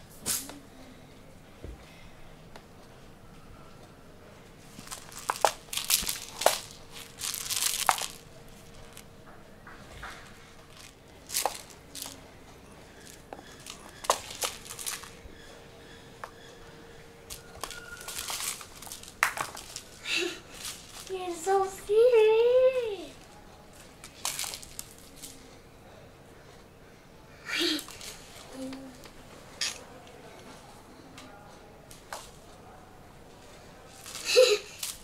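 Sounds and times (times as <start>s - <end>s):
kitten playing with toy on wooden floor: 4.8s - 9.0s, 10.6s - 12.3s, 12.9s - 15.3s, 17.3s - 21.2s.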